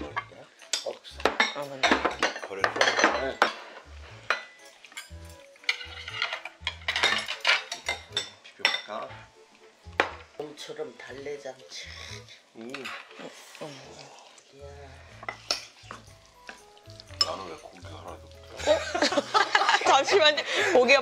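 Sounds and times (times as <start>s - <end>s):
metal ladle clinking and scraping: 1.8s - 8.3s, 15.2s - 16.1s, 17.2s - 18.2s.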